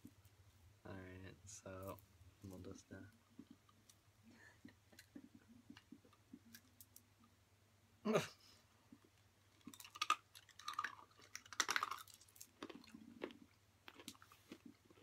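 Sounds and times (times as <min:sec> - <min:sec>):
crunching and chewing: 0:08.9 - 0:15.0
candy cracking between teeth: 0:09.5 - 0:15.0.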